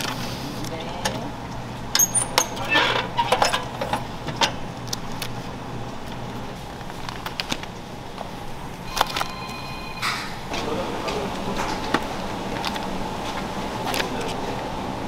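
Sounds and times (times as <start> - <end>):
steady low hum: 0.0 - 15.0
faint high tone: 8.9 - 10.4.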